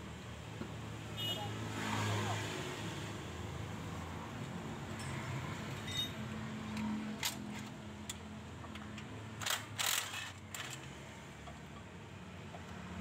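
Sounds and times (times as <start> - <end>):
metal clicks and scrapes: 6.7 - 11.0.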